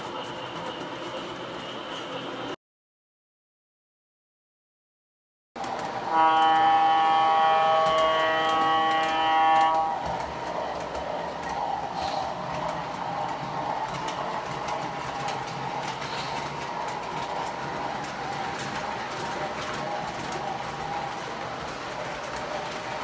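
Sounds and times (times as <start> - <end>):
model freight cars rumbling: 5.6 - 23.0
wheels clicking on rail joints: 5.6 - 23.0
model locomotive horn chord: 6.0 - 10.0.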